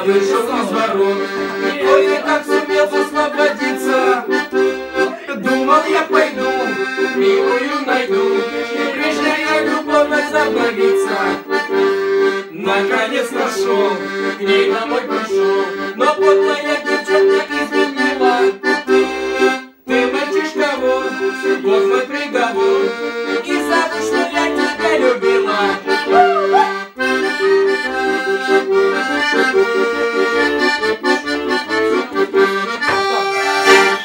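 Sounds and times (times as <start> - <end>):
piano accordion playing: 0.0 - 34.0.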